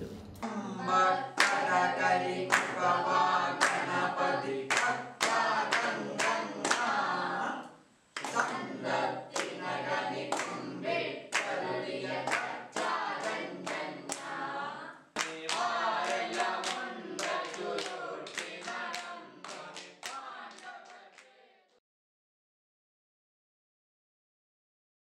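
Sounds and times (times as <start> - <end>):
group singing in unison: 0.4 - 21.8
hand claps: 1.4 - 1.6, 2.5 - 2.8, 3.6 - 3.9, 4.7 - 7.0, 8.2 - 8.6, 10.3 - 10.6, 11.3 - 11.6, 12.2 - 14.4, 15.2 - 21.3.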